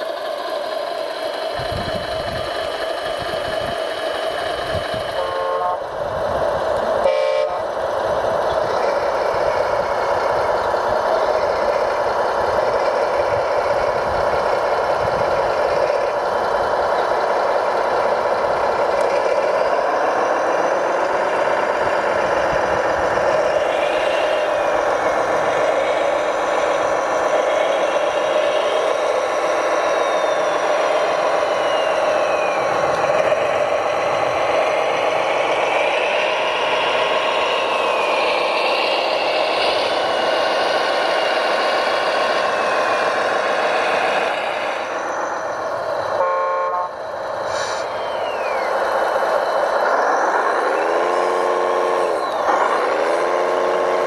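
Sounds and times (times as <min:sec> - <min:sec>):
model vehicle engine drone: 0:00.0 - 0:54.0
short horn toots: 0:07.1 - 0:07.6, 0:46.2 - 0:47.8.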